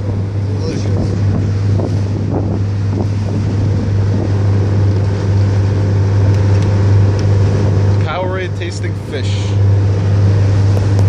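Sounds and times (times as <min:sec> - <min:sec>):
wind buffeting microphone: 0:00.0 - 0:08.1
motorboat engine humming: 0:00.0 - 0:11.0.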